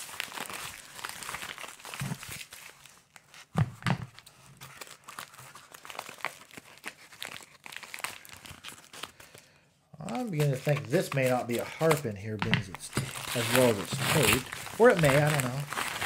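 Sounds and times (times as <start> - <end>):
paper crinkling and tearing: 0.0 - 3.5, 4.2 - 16.0.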